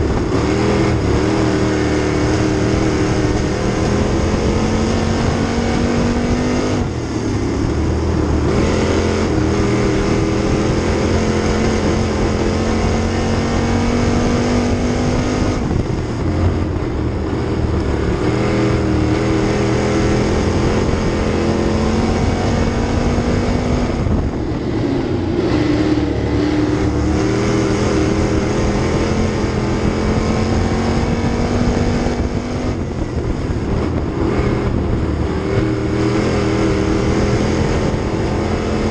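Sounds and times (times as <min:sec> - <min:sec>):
race car engine running hard: 0:00.0 - 0:38.9.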